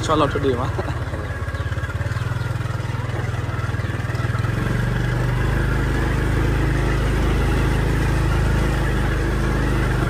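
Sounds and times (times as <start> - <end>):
vehicle engine running: 0.0 - 10.0.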